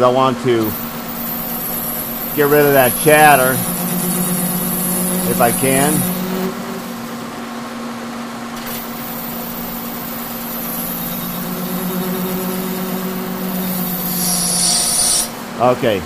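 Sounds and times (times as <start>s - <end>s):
machine hum with cutting: 0.0s - 16.0s
high-pitched ring: 0.7s - 7.2s, 9.2s - 15.3s.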